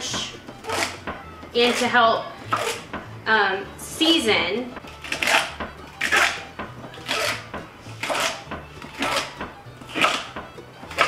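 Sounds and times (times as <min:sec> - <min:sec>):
knife slicing onto wooden board: 0:00.2 - 0:01.0, 0:02.5 - 0:03.0, 0:05.0 - 0:11.0.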